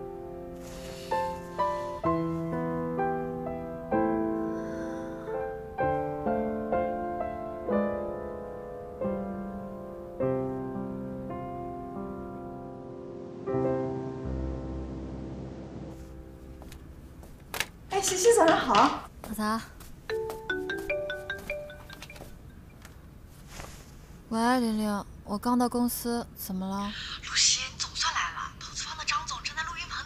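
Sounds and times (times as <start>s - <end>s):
slow piano music: 0.0s - 18.4s, 20.0s - 22.8s.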